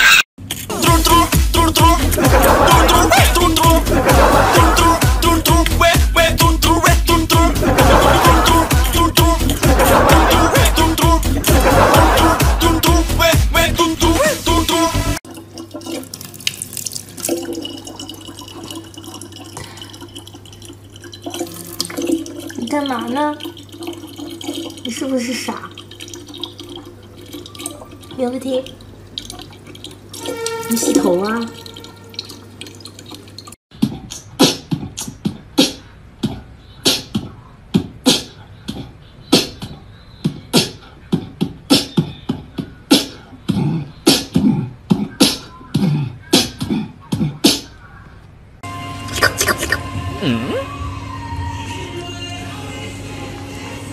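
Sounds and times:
beatboxing: 0.0 - 15.2, 33.7 - 47.8, 49.1 - 50.7
faucet water running into plastic jug: 14.1 - 33.6.

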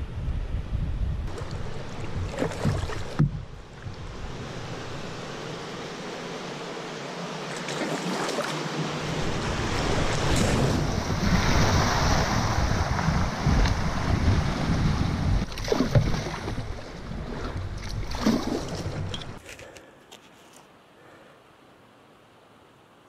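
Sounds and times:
wind rumble on microphone: 0.0 - 5.3, 9.0 - 19.4
rushing river water: 1.3 - 19.4.

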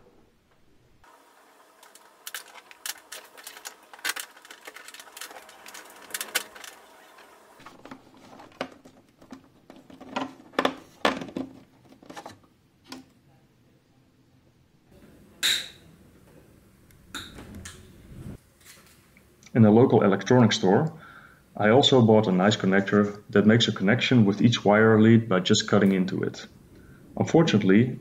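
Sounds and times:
cable rustling: 1.4 - 12.5
plastic clips clicking: 1.8 - 6.8.

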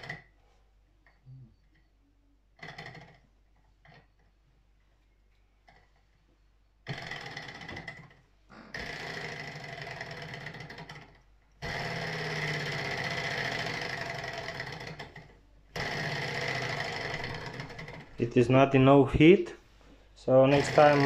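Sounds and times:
small engine mechanical clatter: 0.0 - 0.3, 2.6 - 4.4, 6.8 - 18.5, 20.3 - 21.0.

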